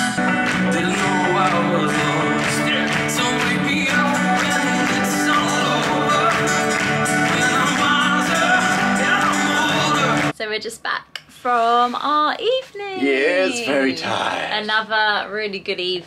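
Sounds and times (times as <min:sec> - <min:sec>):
acoustic guitar: 0:00.0 - 0:10.3
live pop-rock band: 0:00.0 - 0:10.3
man singing: 0:00.0 - 0:10.3, 0:13.0 - 0:14.5.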